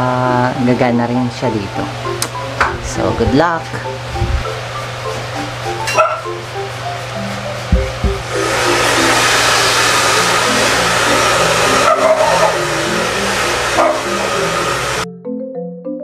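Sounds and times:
low motor hum: 1.4s - 15.0s
hair dryer blowing: 3.8s - 15.1s.

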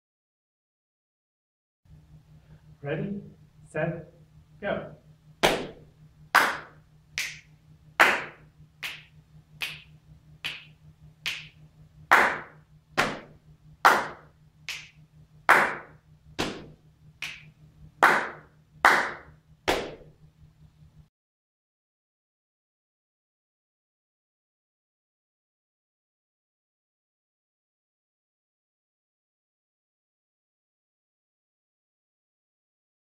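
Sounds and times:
faint low hum: 1.9s - 21.1s
hands clapping and patting thighs: 5.4s - 20.1s.

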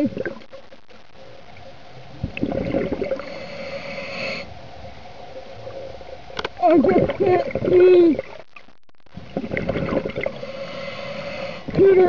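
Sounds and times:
faint steady hum: 0.0s - 12.0s
hissing inhale through regulator: 2.4s - 4.6s, 9.4s - 11.7s.

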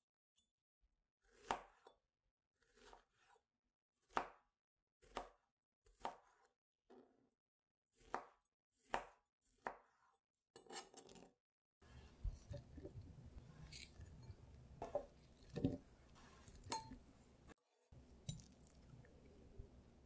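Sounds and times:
knife chopping fruit: 1.3s - 2.0s, 2.6s - 3.4s, 4.0s - 6.6s, 8.0s - 10.1s
spoon stirring in a glass bowl: 11.9s - 17.1s.

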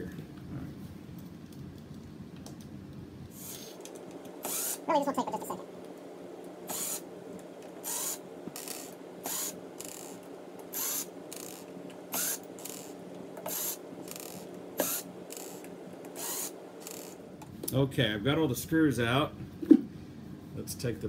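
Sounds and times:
drill-driver whirring: 3.4s - 4.9s, 6.7s - 7.0s, 7.8s - 17.2s.

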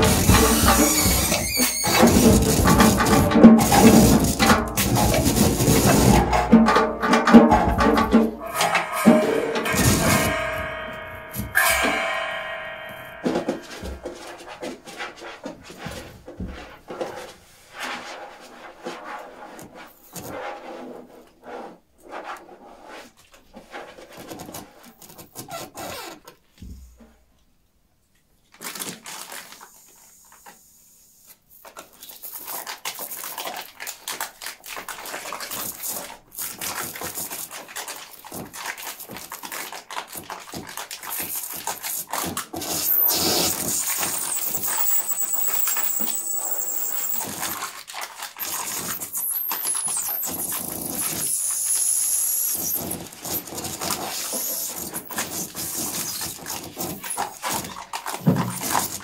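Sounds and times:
experimental music scraping and clicking: 0.0s - 14.1s, 42.7s - 47.5s.

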